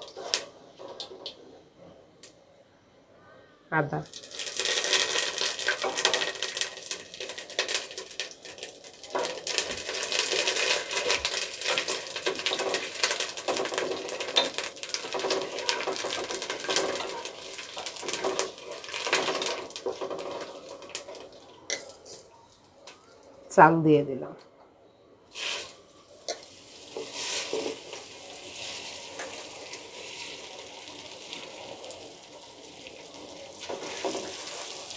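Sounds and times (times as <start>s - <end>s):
spices sizzling in hot oil: 4.0s - 21.8s, 25.3s - 34.9s.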